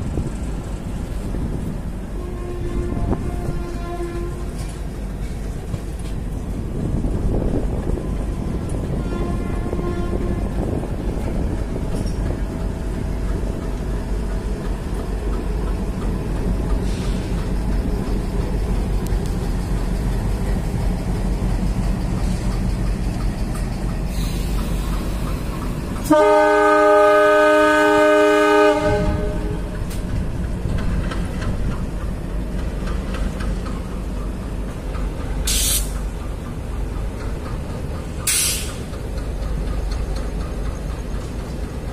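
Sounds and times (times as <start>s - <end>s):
diesel locomotive rumble: 0.0s - 41.9s
train horn: 2.1s - 4.8s, 8.8s - 10.7s, 26.0s - 29.9s.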